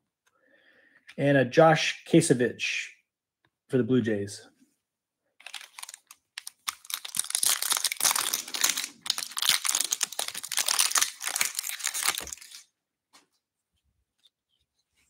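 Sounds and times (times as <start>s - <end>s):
wrapper crinkling: 5.4s - 12.7s.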